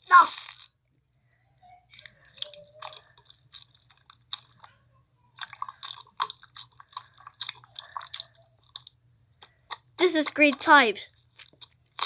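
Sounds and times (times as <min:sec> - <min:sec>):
hands squelching slime: 0:05.4 - 0:12.0.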